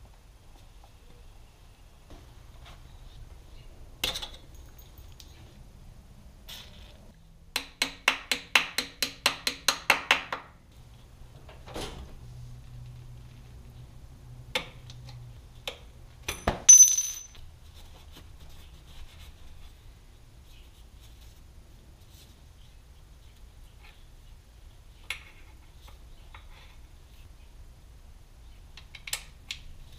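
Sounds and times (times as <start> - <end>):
loud ringing metal clink: 16.3 - 17.4
metal tools being handled: 16.3 - 17.4.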